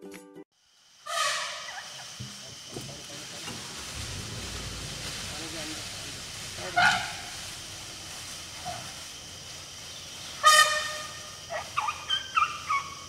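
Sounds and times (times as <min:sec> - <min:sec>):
elephant trumpeting: 0:03.5 - 0:09.4, 0:10.2 - 0:13.0
short high calls: 0:10.1 - 0:13.0.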